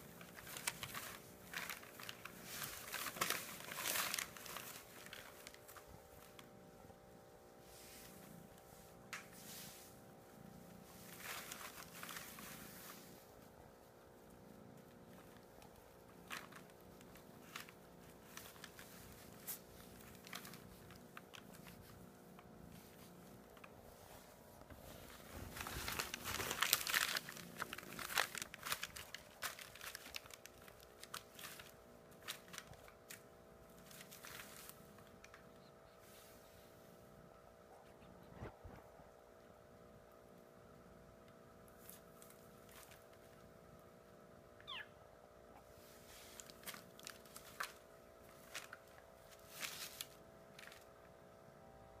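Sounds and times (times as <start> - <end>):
packing paper crinkling: 0.0 - 6.6, 10.8 - 12.9, 14.5 - 23.8, 24.7 - 35.6, 41.7 - 43.4, 46.0 - 51.2
kitten mewing: 44.6 - 45.0.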